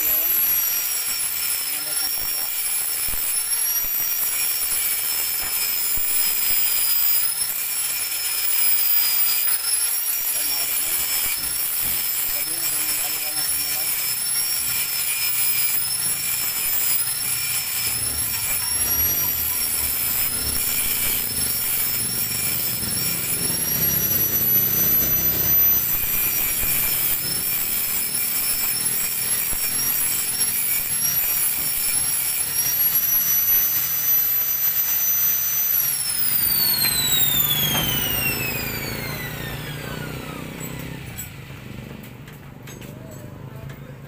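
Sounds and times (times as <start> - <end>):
high whine: 12.4 - 41.7.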